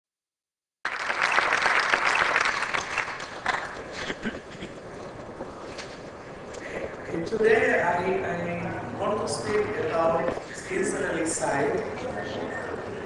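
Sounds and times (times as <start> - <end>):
audience applauding: 0.8 - 4.2.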